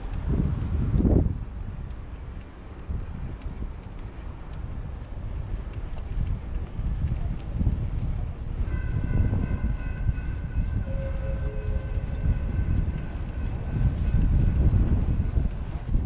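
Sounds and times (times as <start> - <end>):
wind buffeting microphone: 0.0 - 16.0
distant train horn: 8.6 - 14.6.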